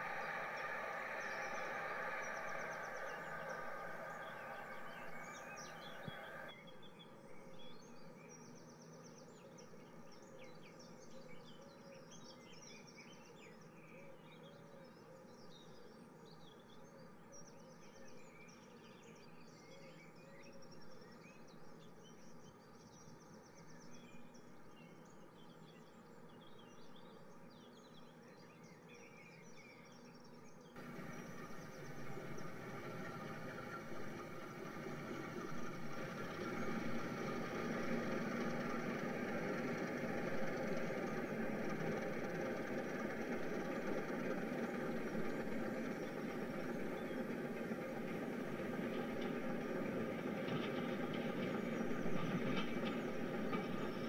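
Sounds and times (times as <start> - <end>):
model train whirring: 0.0 - 6.5, 30.8 - 54.0
steady low hum: 0.0 - 6.5, 30.8 - 54.0.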